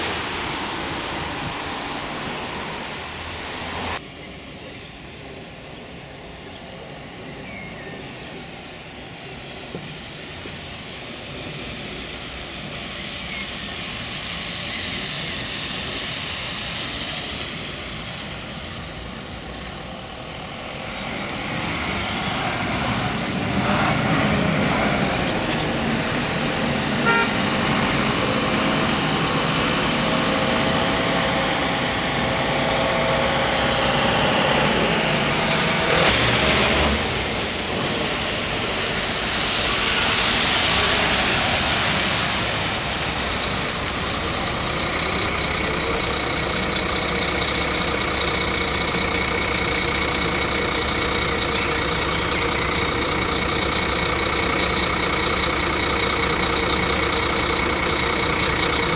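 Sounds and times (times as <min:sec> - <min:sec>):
truck passing: 0:00.0 - 0:04.0, 0:10.6 - 0:58.9
bus engine: 0:00.0 - 0:58.9
tyre hiss on wet asphalt: 0:33.2 - 0:45.0
brief high squeals: 0:41.2 - 0:45.5.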